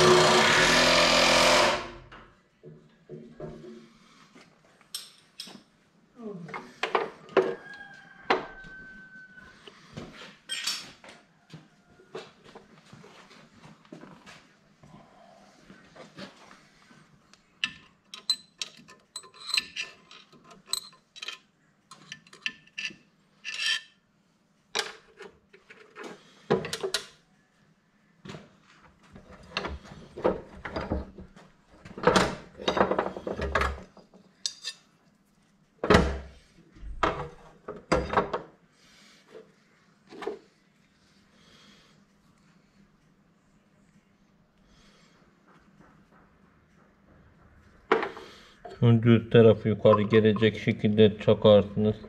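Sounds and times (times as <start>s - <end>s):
steel parts clinking: 17.6s - 23.9s.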